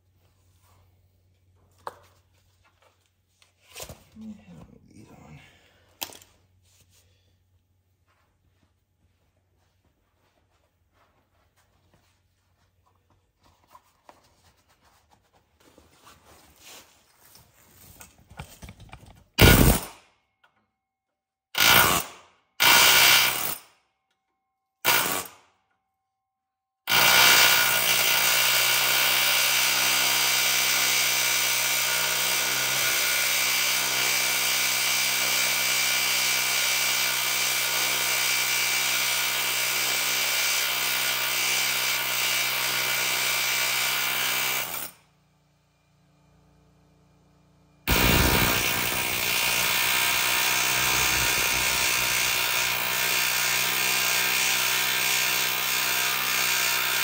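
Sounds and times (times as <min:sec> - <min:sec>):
power tool running: 0:45.8 - 0:57.0.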